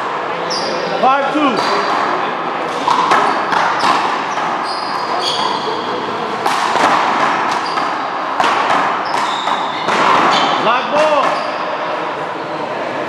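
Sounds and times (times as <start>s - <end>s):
shoes squeaking on court: 0.4s - 0.9s, 2.7s - 6.4s, 7.4s - 11.8s.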